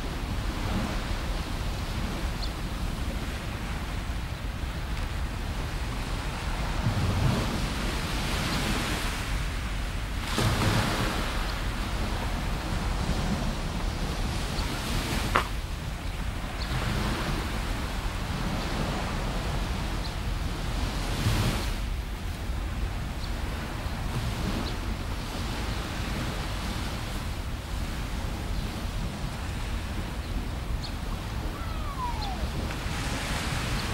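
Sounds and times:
small waves washing onto sand: 0.0 - 33.9
wind rumble on microphone: 0.0 - 33.9.

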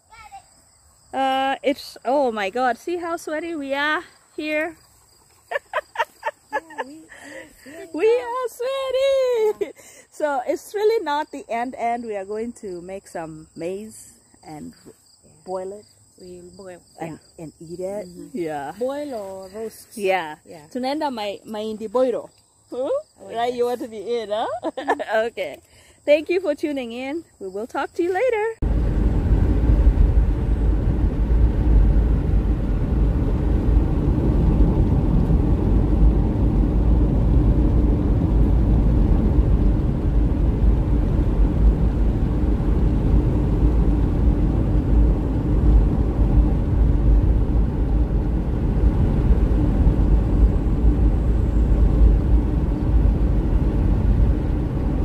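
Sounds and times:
car road and engine rumble: 28.2 - 55.0.

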